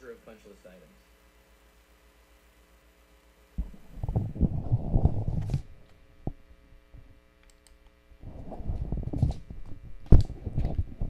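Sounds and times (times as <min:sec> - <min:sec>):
muffled rumbling and knocking: 0:03.6 - 0:06.4.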